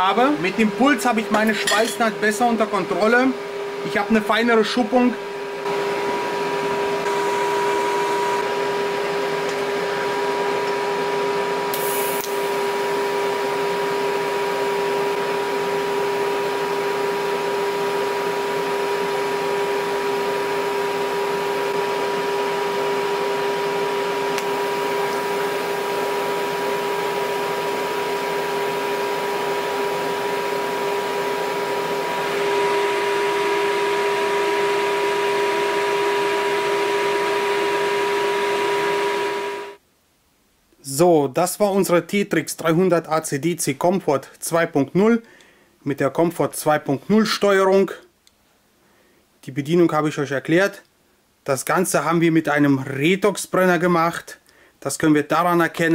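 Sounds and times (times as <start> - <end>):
welding arc buzzing: 5.0 - 39.8.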